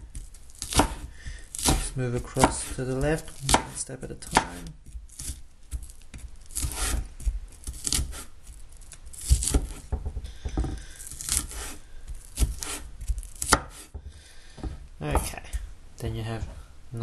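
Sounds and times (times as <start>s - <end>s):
knife slicing spring onion: 0.0s - 13.9s
knife knocking on cutting board: 9.6s - 10.8s.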